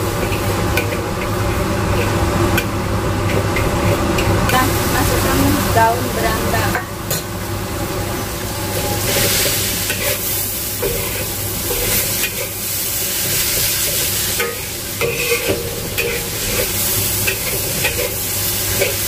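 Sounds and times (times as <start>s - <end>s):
food sizzling in a wok: 0.0s - 19.0s
metal spatula scraping a pan: 0.2s - 2.7s, 8.8s - 12.6s, 13.2s - 19.0s.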